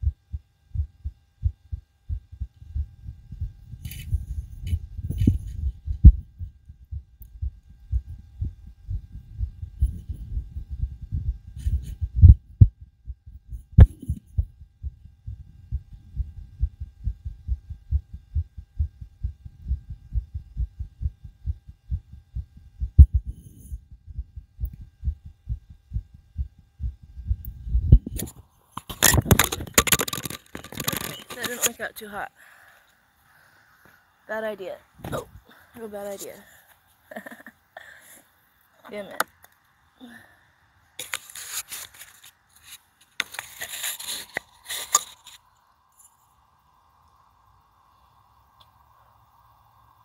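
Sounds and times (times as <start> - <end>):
fast heartbeat thumping: 0.0 - 28.3
rubbing on microphone: 3.4 - 6.4, 9.0 - 12.2, 41.0 - 45.4.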